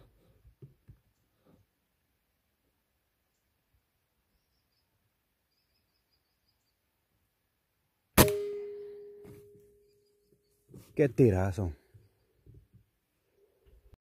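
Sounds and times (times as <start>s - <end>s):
air rifle shot: 8.2s - 9.1s
metallic ringing tone: 8.4s - 10.2s.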